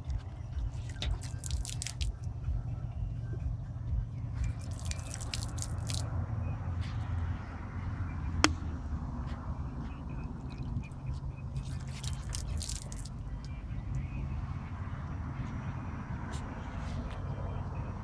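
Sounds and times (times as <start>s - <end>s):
steady low rumble: 0.0s - 18.0s
water splashing on car hood: 11.9s - 13.1s.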